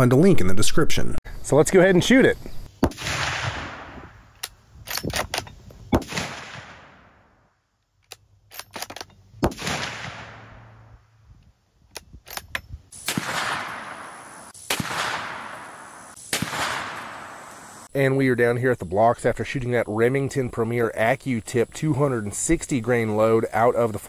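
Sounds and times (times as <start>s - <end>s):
rifle gunshots: 2.8s - 4.2s, 5.0s - 7.2s, 9.4s - 10.8s, 13.0s - 17.9s.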